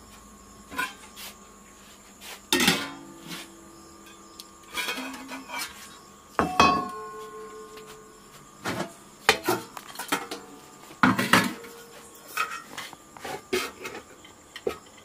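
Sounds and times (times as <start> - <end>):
metal pots and ladle clinking: 2.5 - 3.2, 4.1 - 5.8, 6.4 - 8.0, 8.7 - 12.9.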